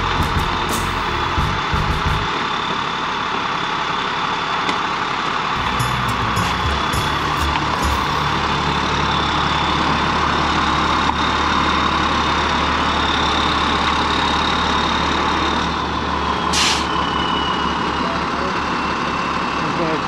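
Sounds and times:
high whine: 0.0s - 2.4s, 5.6s - 11.6s
truck engine running: 0.0s - 4.3s, 5.0s - 20.0s
air release hiss: 16.5s - 16.9s.

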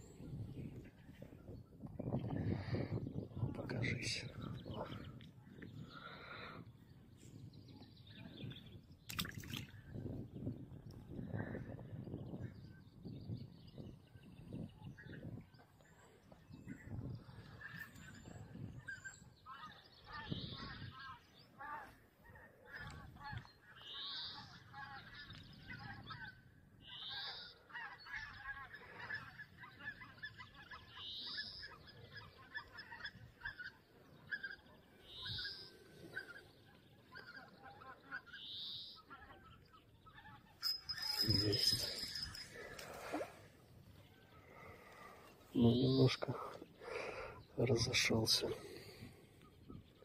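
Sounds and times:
flock of birds calling: 14.9s - 50.0s.

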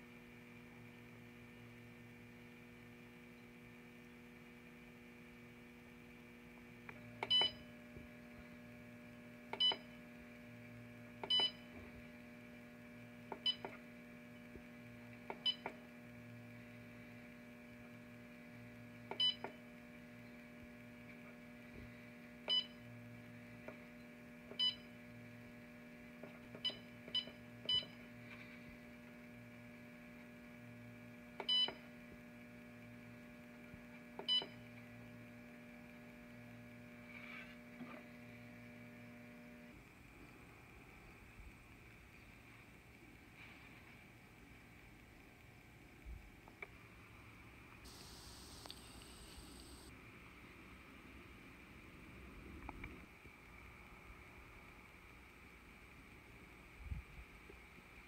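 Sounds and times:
low electrical hum: 0.0s - 58.0s
keypad beeps: 7.2s - 7.7s, 9.6s - 9.9s, 11.2s - 11.6s, 19.2s - 19.6s.

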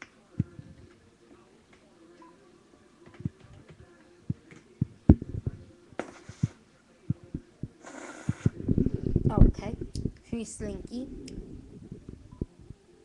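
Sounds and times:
short hissing bursts: 7.8s - 8.5s.

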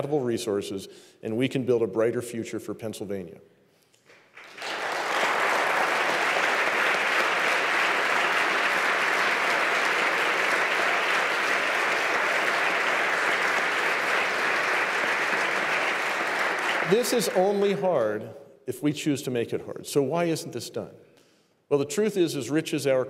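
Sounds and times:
audience applauding: 4.1s - 17.9s.

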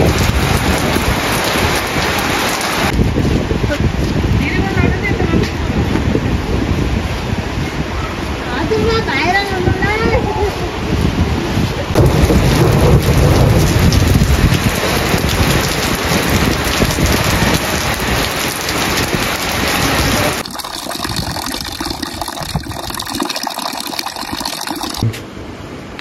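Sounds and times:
heavy rain pouring: 0.0s - 3.6s, 11.9s - 25.0s.

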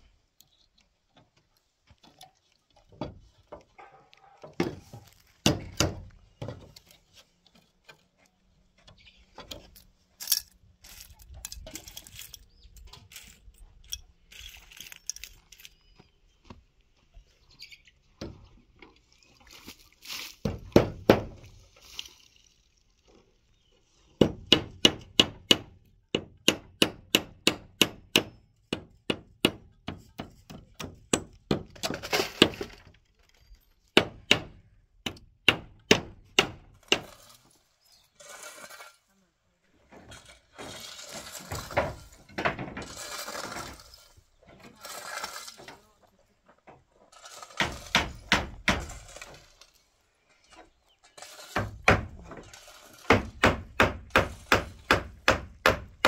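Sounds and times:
scattered knocks and clatter: 39.9s - 43.9s.

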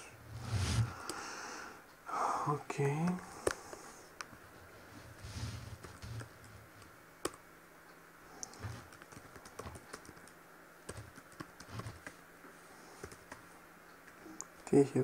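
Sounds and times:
computer keyboard typing: 8.4s - 12.2s, 13.0s - 13.4s.

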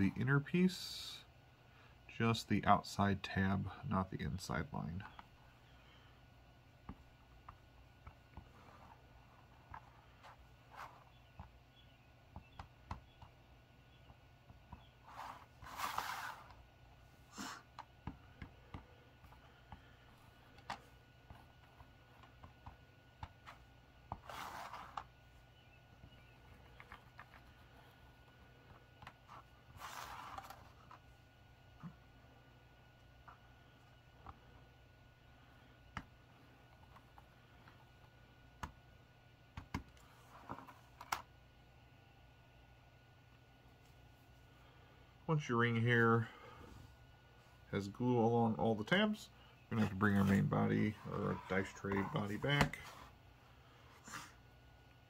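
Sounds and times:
hand rustling over cutting mat: 14.8s - 16.6s, 23.4s - 25.2s, 28.7s - 31.1s, 49.8s - 53.2s.

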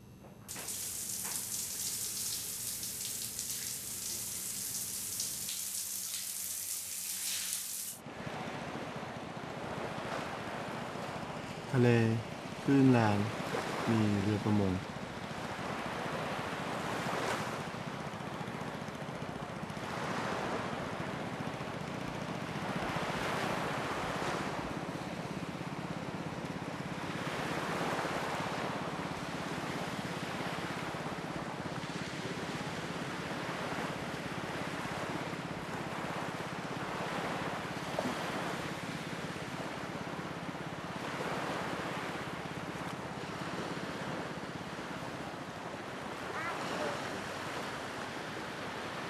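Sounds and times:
steady hiss of wind: 0.0s - 49.0s
small waves washing onto sand: 0.5s - 9.0s, 9.6s - 17.8s, 19.8s - 21.5s, 22.4s - 49.0s.

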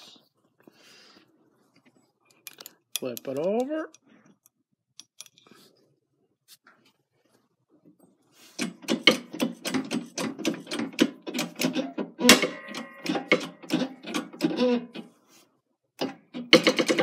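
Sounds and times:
metallic clicks and creaks: 8.6s - 15.1s
metallic ring: 12.2s - 13.6s.

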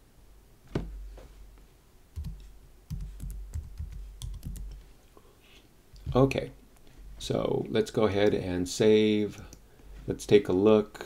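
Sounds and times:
typing on computer keyboard: 2.2s - 4.8s.

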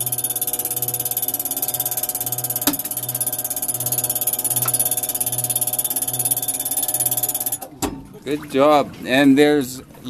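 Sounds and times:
electric motor and gearing running: 0.0s - 7.6s.

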